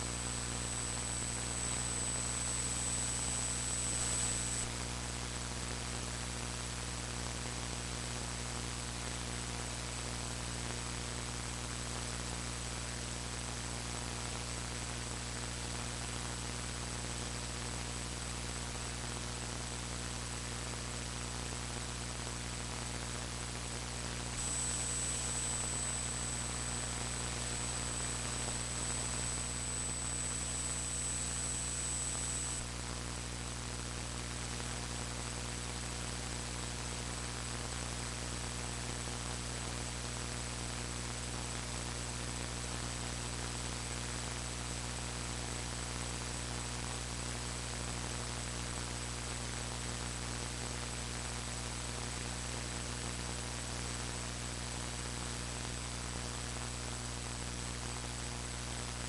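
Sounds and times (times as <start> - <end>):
electrical hiss: 0.0 - 4.8, 23.5 - 32.7
thin high whine: 0.0 - 4.8, 23.9 - 32.8
low mains hum: 0.0 - 59.0.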